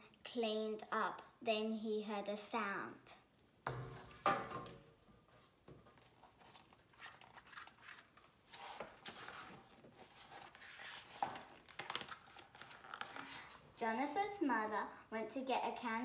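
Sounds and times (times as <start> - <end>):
pages turning: 5.9 - 13.6.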